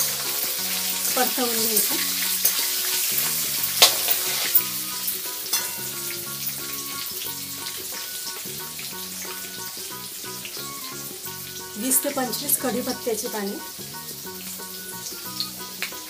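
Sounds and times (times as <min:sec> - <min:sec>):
food sizzling in hot oil: 0:00.0 - 0:16.0
soft background music: 0:00.0 - 0:16.0
spoon scraping a metal pan: 0:03.6 - 0:04.8, 0:05.5 - 0:06.0.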